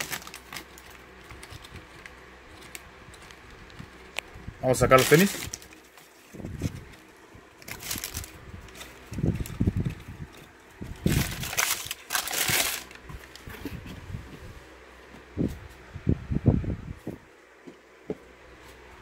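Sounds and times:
tissue paper crinkling: 0.0s - 2.8s, 4.7s - 10.4s, 11.0s - 13.0s.

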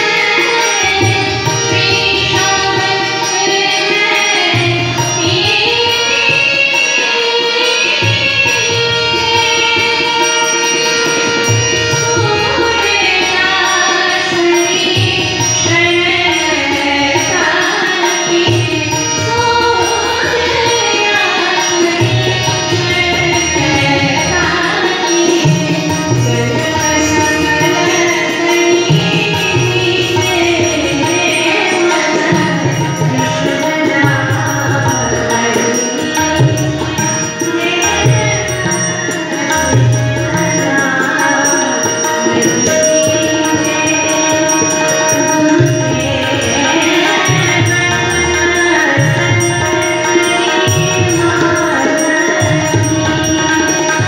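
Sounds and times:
harmonium: 0.0s - 54.0s
tabla drum strokes: 0.0s - 54.0s
woman singing: 0.0s - 54.0s.

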